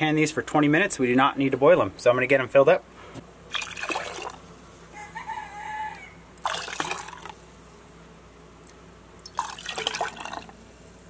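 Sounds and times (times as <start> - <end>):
liquid pouring and splashing: 3.5 - 4.4, 6.4 - 7.4, 9.2 - 10.6.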